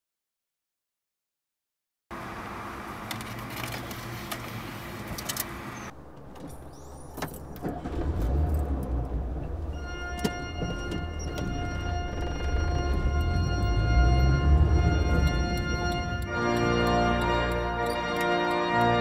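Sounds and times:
deep low rumble: 7.9s - 16.4s
held music tones: 9.4s - 19.0s.

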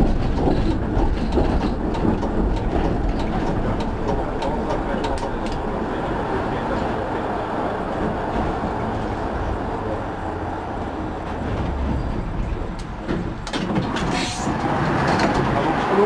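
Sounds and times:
tram wheels rumbling: 0.0s - 16.0s.

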